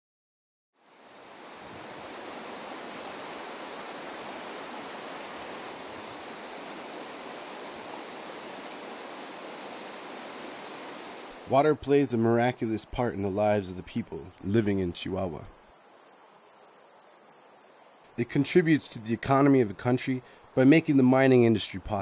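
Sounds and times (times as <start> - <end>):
water rushing over stones: 1.1 - 11.5.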